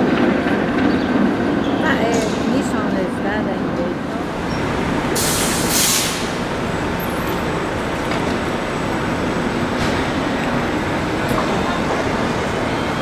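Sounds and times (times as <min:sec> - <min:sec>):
streetcar rumbling past: 0:00.0 - 0:13.0
hiss of released air: 0:05.2 - 0:06.4.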